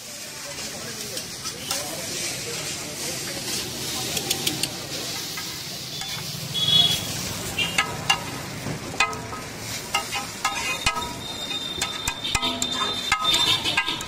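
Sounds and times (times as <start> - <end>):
frying sizzle: 0.0 - 14.0
metal spatula scraping griddle: 9.0 - 14.0.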